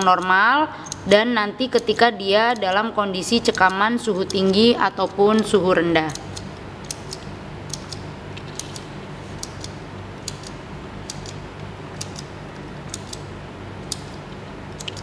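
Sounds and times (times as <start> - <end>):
low steady hum: 0.0 - 15.0
tally counter clicking: 0.0 - 15.0.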